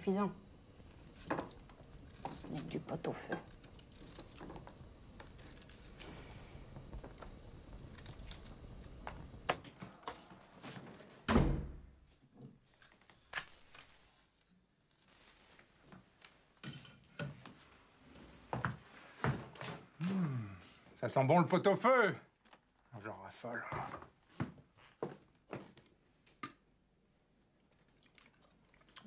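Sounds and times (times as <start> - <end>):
wooden door thunk: 11.3 - 11.8.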